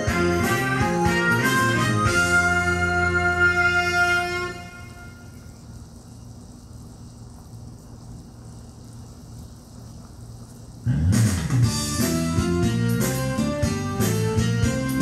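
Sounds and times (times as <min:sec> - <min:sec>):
organ-like chord: 0:00.0 - 0:05.6, 0:10.9 - 0:15.0
steady hiss: 0:00.0 - 0:15.0.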